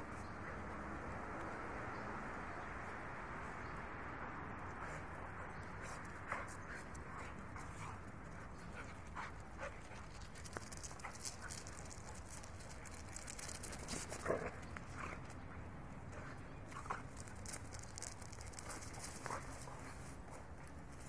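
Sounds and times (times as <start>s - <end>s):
paws scuffling on concrete: 5.5s - 21.0s.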